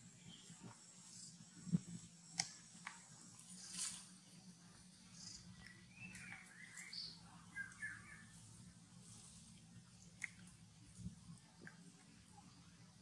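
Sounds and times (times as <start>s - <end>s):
rustle: 0.0s - 4.4s, 5.1s - 12.2s
faint wavering chirps: 5.0s - 8.5s.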